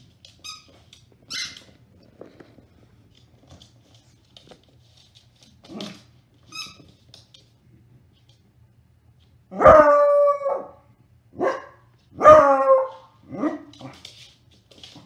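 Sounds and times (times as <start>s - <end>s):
dog barking: 11.4s - 13.7s.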